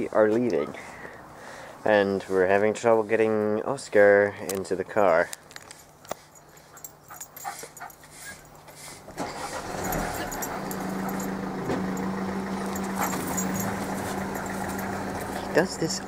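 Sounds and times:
car engine idling: 9.2 - 16.0.

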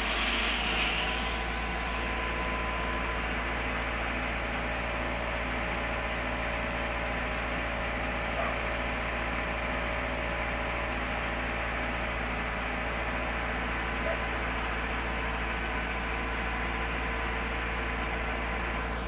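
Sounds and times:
faint steady whine: 0.0 - 5.3
low engine drone: 0.0 - 19.0.

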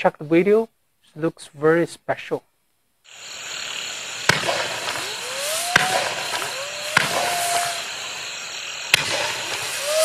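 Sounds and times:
rising firework whine: 3.1 - 10.0
firework pops: 4.2 - 8.2, 8.9 - 10.0.

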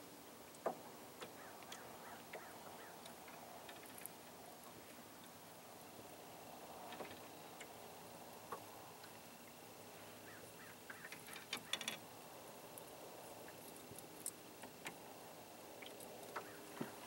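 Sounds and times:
light clicks and drips: 0.4 - 5.4, 6.8 - 7.8, 8.4 - 9.6, 12.7 - 17.0.

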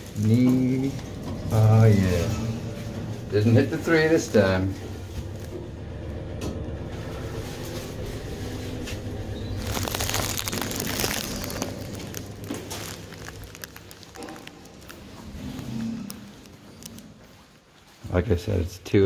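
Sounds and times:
lift car humming: 0.0 - 17.3
rustling and handling noise: 7.1 - 18.1.

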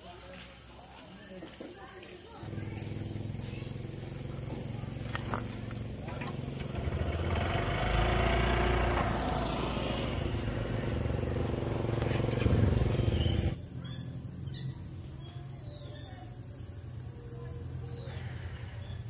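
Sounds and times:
outdoor background noise: 0.0 - 19.0
engine running: 2.4 - 13.6.

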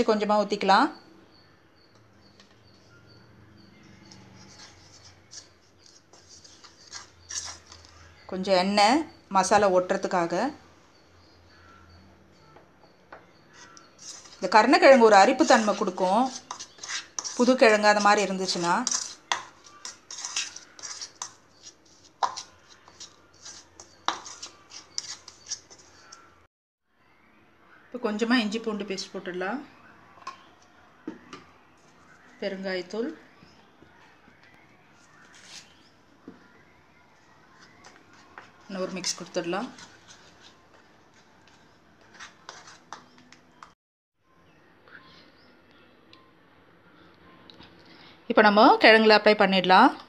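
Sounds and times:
faint high chirps: 0.9 - 8.4, 10.6 - 15.0, 22.4 - 39.2, 43.0 - 48.2
plastic spoon scraping in bowl: 4.0 - 8.0, 13.6 - 26.2, 42.0 - 43.2.

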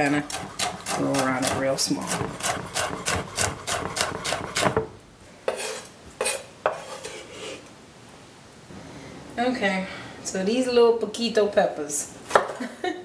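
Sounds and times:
knife chopping on wooden board: 0.3 - 6.8
sharp knocks: 2.1 - 5.0.

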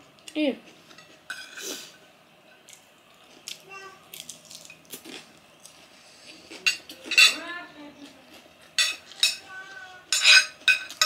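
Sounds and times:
cutlery clinking on ceramic plate: 6.6 - 7.4, 8.8 - 9.4, 10.1 - 11.0.

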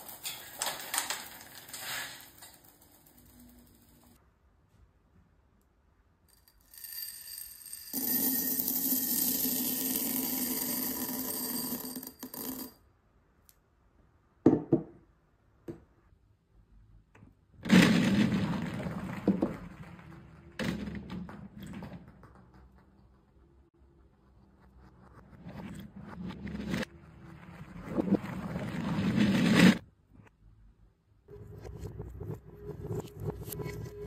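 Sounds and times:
beads clattering onto glass plate: 0.0 - 4.1, 6.3 - 12.8.

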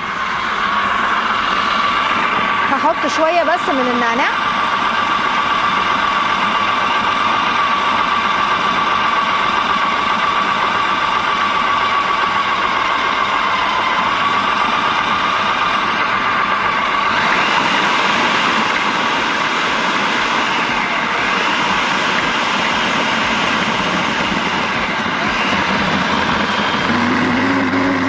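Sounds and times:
food processor motor chopping: 0.0 - 28.0.

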